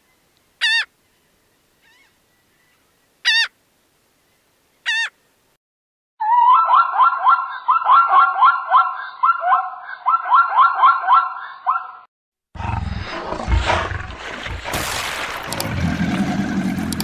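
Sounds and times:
zebra yelping barks: 0:06.2 - 0:12.0.

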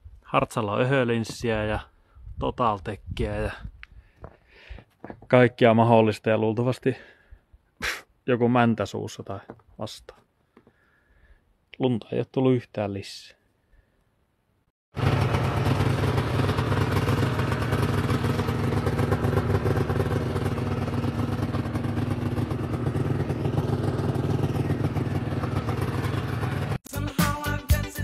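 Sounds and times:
snowmobile engine running: 0:15.0 - 0:26.8
funk music: 0:24.8 - 0:28.0.

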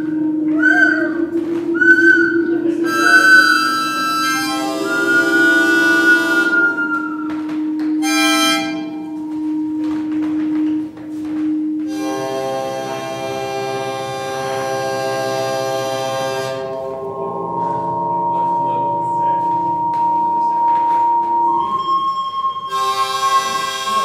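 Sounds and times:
buzzy layered feedback tones: 0:00.0 - 0:24.0
low feedback drone: 0:00.0 - 0:24.0
whistling feedback tones: 0:00.0 - 0:24.0.

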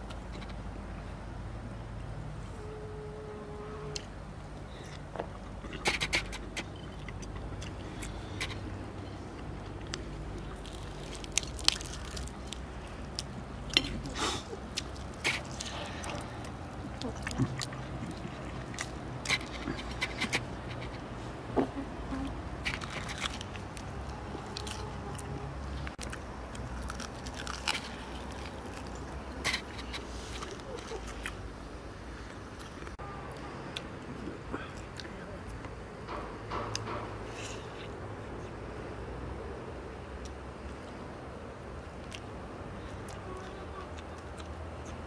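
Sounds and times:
crunching and chewing: 0:03.9 - 0:31.5, 0:32.2 - 0:35.8, 0:41.8 - 0:45.0
crust crackling: 0:05.6 - 0:33.0.

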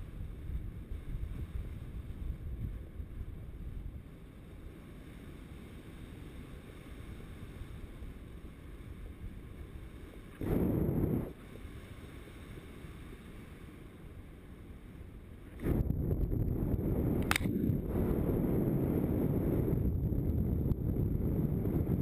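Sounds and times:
wind buffeting microphone: 0:00.0 - 0:05.0, 0:05.6 - 0:11.6, 0:15.4 - 0:22.0
brief click: 0:17.2 - 0:17.6.

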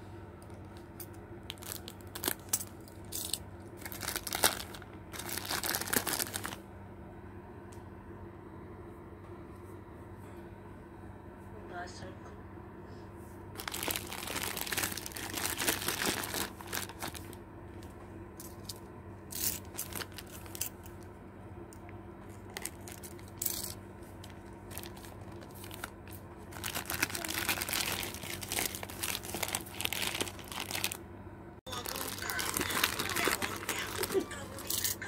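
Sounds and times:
steady low hum: 0:00.0 - 0:35.0
plastic wrapping crinkling: 0:01.5 - 0:06.6, 0:13.6 - 0:17.4, 0:19.3 - 0:20.8, 0:22.3 - 0:31.0, 0:31.7 - 0:35.0.

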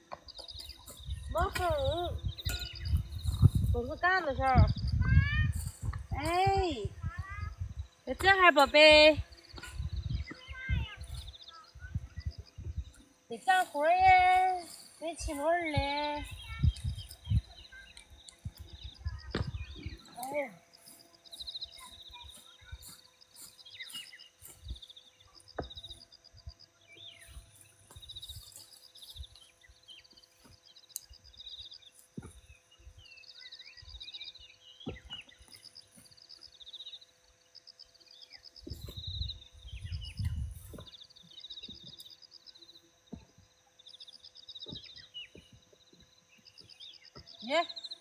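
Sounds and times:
birds chirping and trilling: 0:00.0 - 0:48.0
soft thumps and rustles of plants: 0:19.2 - 0:20.0, 0:38.6 - 0:39.2, 0:40.1 - 0:41.0.

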